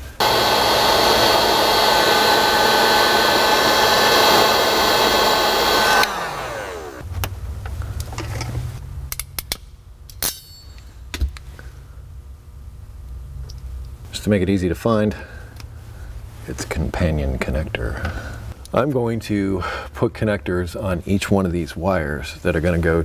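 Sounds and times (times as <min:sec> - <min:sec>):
heat gun blowing: 0:00.0 - 0:07.0
fan winding down whine: 0:00.0 - 0:08.9.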